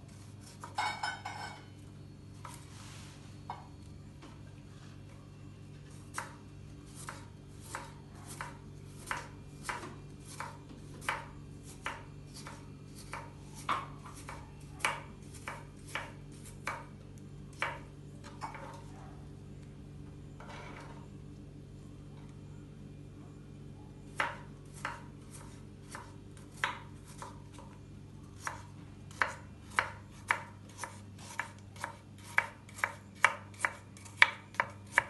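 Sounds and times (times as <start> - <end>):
knife chopping on wooden board: 6.1 - 16.9, 17.5 - 18.8, 24.2 - 27.6, 28.4 - 35.0.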